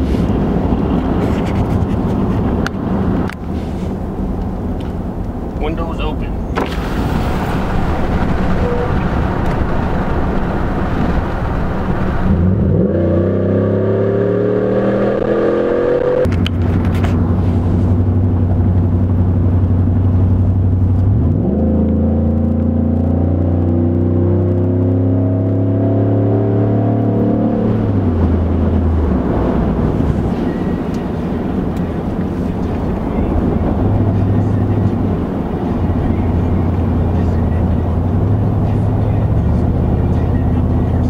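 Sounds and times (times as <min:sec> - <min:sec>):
truck exhaust note: 0:06.2 - 0:41.0
wind rushing in: 0:06.6 - 0:16.2.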